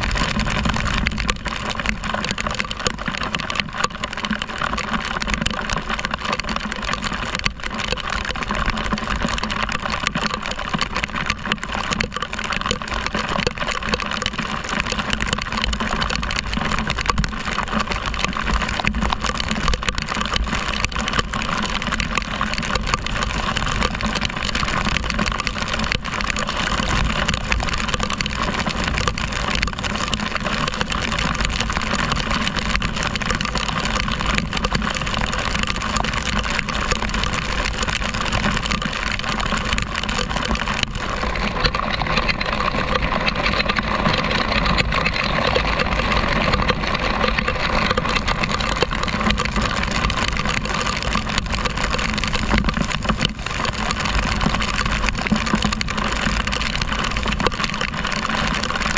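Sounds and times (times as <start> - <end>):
wind rush on microphone: 0.0 - 3.2.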